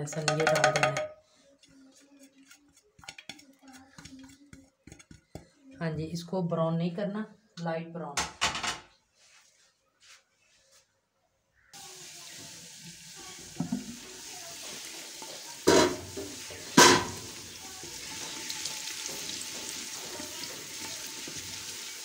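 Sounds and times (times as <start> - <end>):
spatula knocking clay pot: 0.0 - 1.2, 2.4 - 5.5
food sizzling in hot oil: 11.8 - 22.0.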